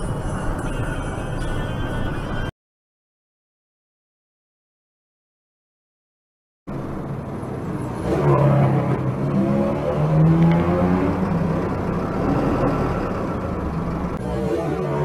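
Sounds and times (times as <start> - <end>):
road traffic: 0.0 - 2.5, 6.7 - 15.0.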